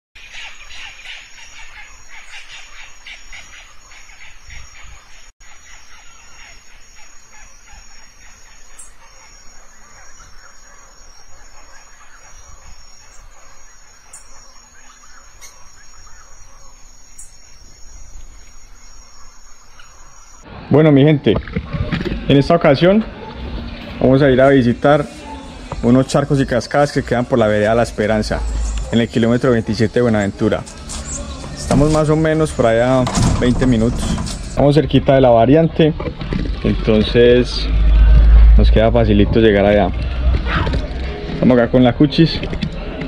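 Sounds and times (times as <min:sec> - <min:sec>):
insects shrilling: 0:00.2 - 0:20.4, 0:24.0 - 0:35.4
rapid chirping calls: 0:00.2 - 0:20.4, 0:24.0 - 0:35.4
low rumble: 0:30.6 - 0:41.4.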